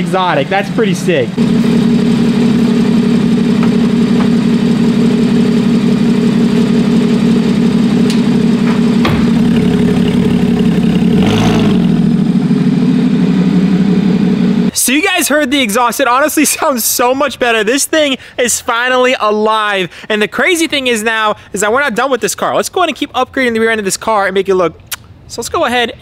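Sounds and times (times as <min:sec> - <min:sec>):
car engine idling: 0:00.0 - 0:14.7
sharp knock: 0:08.1 - 0:10.1.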